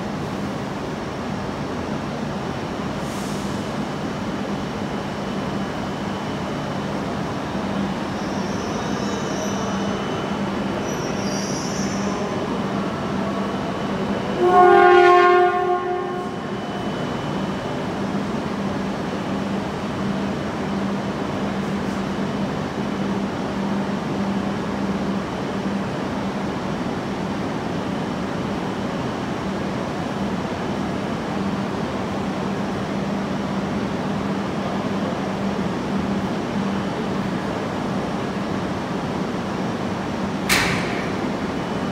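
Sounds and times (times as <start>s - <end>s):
low hum of standing trains: 0.0s - 41.9s
train horn blast: 14.4s - 16.4s.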